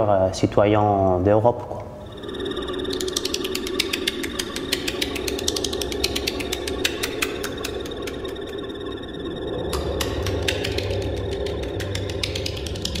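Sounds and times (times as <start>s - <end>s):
steady low hum: 0.0s - 13.0s
thin high steady tone: 2.0s - 13.0s
sharp mechanical clicks: 2.9s - 8.7s.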